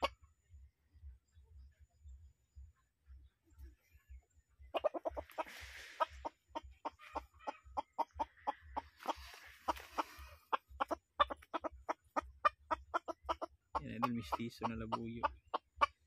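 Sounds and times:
rooster clucking: 0:00.0 - 0:00.3, 0:04.6 - 0:16.0.

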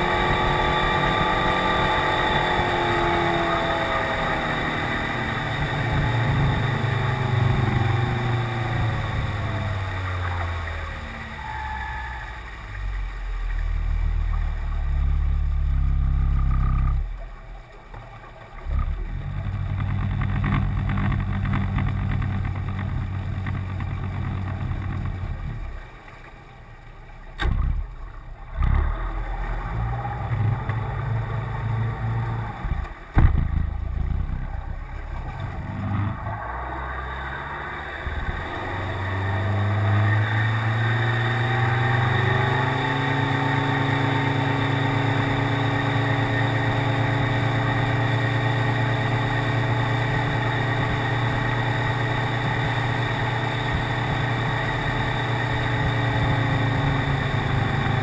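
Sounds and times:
outboard motor running: 0:00.0 - 0:58.0
sharp knocks: 0:33.1 - 0:33.6.

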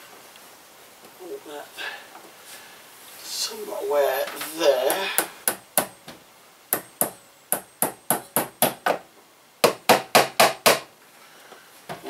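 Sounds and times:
hammer tapping: 0:04.9 - 0:06.0, 0:06.7 - 0:09.0.

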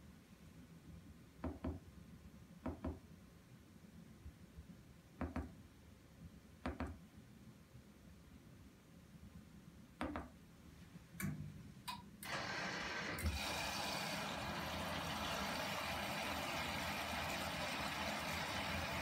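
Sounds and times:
water rushing into machine: 0:12.2 - 0:19.0.

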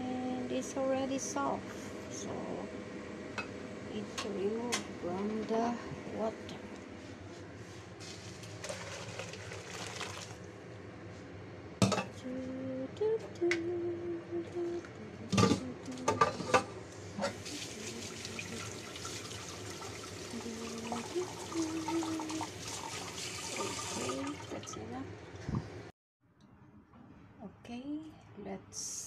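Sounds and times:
water pouring through colander: 0:08.6 - 0:10.5, 0:17.4 - 0:24.8.

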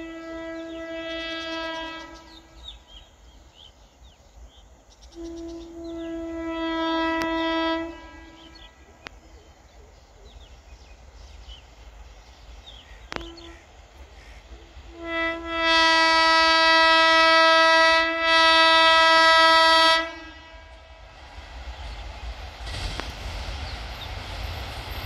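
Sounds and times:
locomotive horn blasts: 0:00.0 - 0:02.7, 0:05.1 - 0:08.8, 0:13.1 - 0:13.8, 0:14.8 - 0:21.0.

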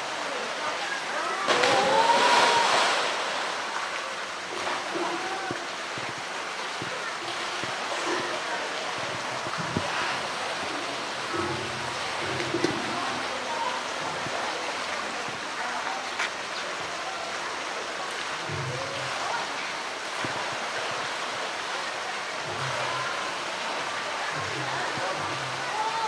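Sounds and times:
rushing water: 0:00.0 - 0:26.0
animal splashing in water: 0:01.5 - 0:03.6.

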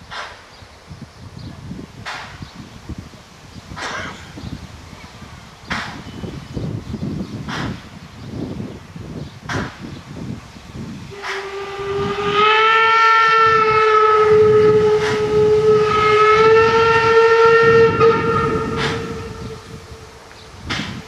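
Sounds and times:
train rumble: 0:00.0 - 0:21.0
steam locomotive whistle: 0:11.1 - 0:20.2.

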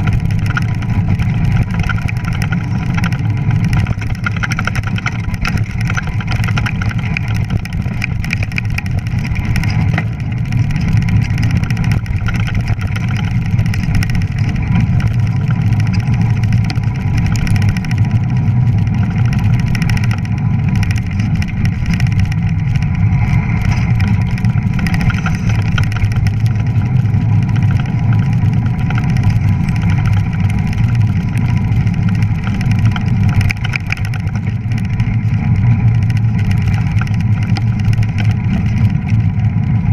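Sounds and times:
tyres rolling over snow: 0:00.0 - 0:39.9
wind on microphone: 0:00.0 - 0:39.9.

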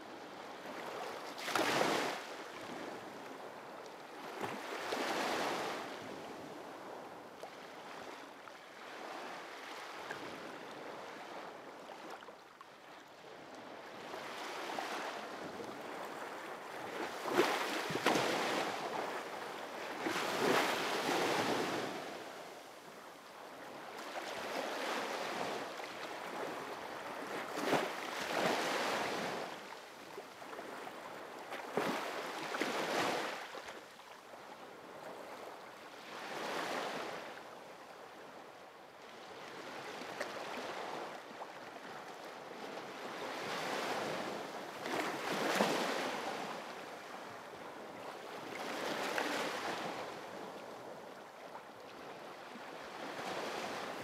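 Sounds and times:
sea waves breaking: 0:15.9 - 0:19.3.

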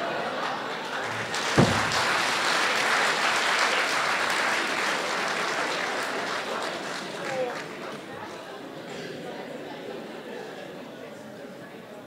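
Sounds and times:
audience applauding: 0:00.8 - 0:08.0
single thump: 0:01.1 - 0:02.4.

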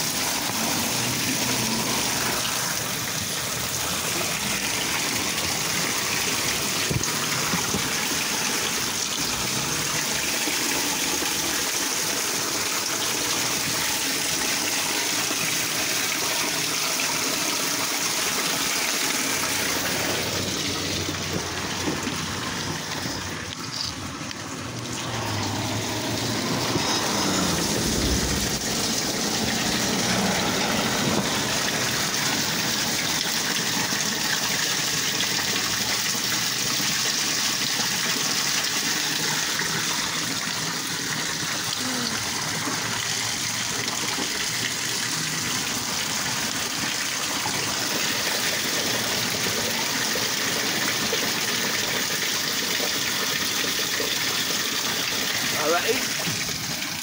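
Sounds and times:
water gushing down storm drain: 0:00.0 - 0:57.0.

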